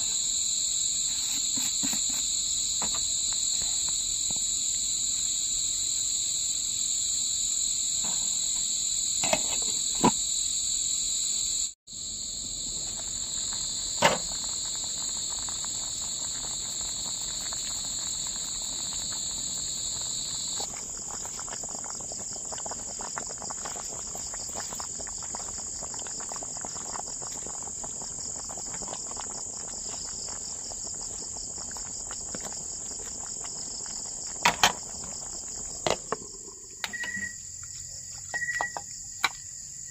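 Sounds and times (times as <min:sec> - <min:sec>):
insects chirring: 0:00.0 - 0:39.9.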